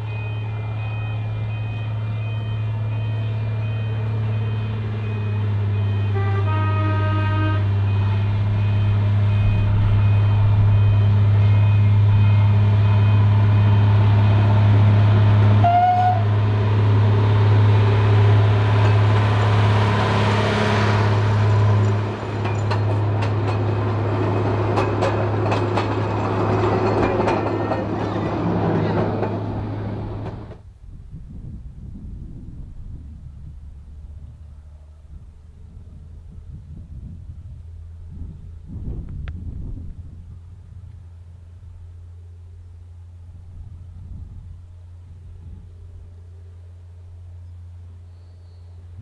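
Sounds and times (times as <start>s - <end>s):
level crossing alarm beeping: 0.0s - 6.5s, 7.5s - 14.5s
diesel locomotive engine hum: 0.0s - 49.0s
train horn toot: 5.3s - 13.9s, 15.5s - 16.4s
wheels clicking over rail joints: 21.8s - 30.6s.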